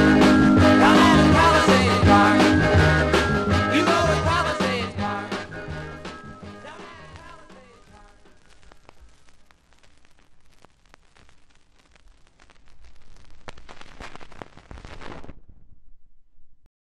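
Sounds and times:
vinyl crackle with clicks and pops: 0.0 - 16.7.

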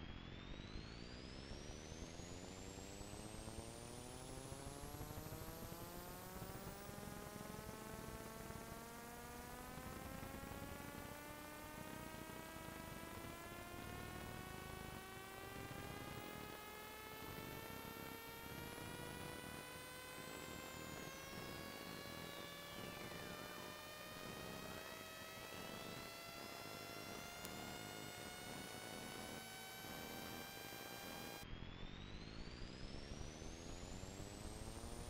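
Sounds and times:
faint buzzing hum: 0.4 - 35.0.

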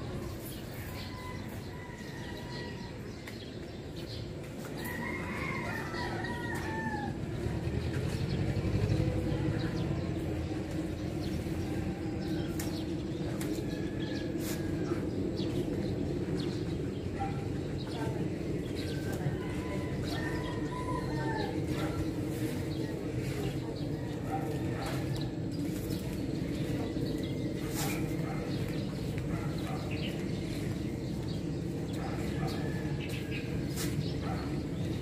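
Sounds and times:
rooster crowing: 4.8 - 7.3, 19.4 - 21.8.

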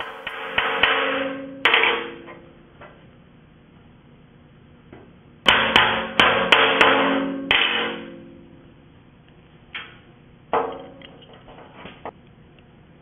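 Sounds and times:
hammer striking steel post: 0.0 - 2.4, 5.5 - 8.4
metal ringing: 0.0 - 2.5, 5.5 - 8.6
small clicks of steel parts: 10.7 - 11.6.

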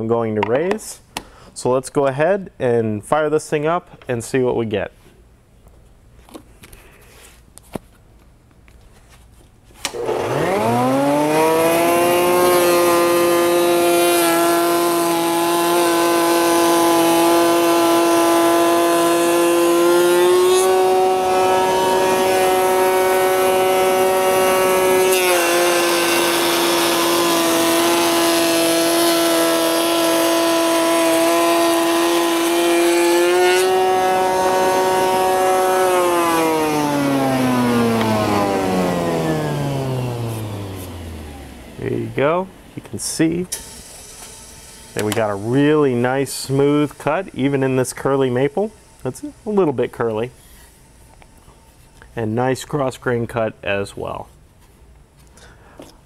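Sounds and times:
wood router whining: 9.8 - 52.1.

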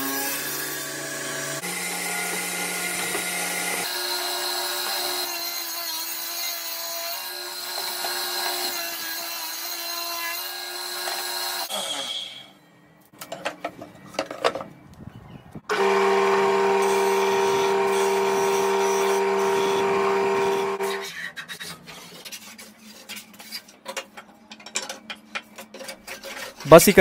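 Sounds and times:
spindle sander humming: 15.7 - 21.0
hand plane shaving wood: 15.8 - 23.2.

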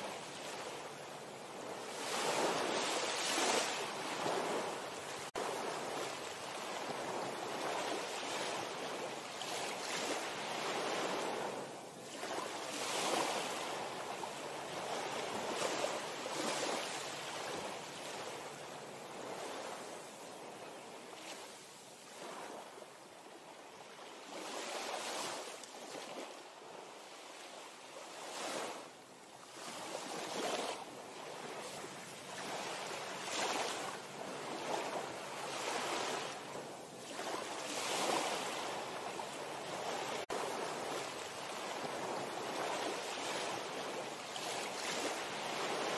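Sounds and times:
sea waves washing: 0.0 - 20.2, 29.5 - 45.9
wind: 0.0 - 45.9.

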